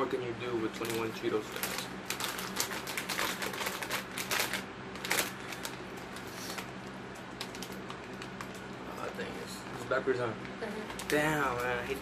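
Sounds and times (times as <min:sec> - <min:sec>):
snack bag crinkling: 0:00.7 - 0:08.7.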